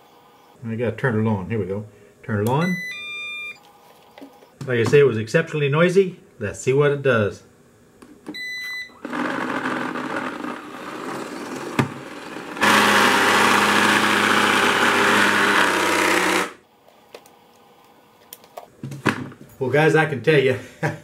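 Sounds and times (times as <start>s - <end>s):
robot vacuum beep: 2.6s - 3.6s, 8.4s - 9.0s
robot vacuum motors whirring: 9.0s - 16.6s.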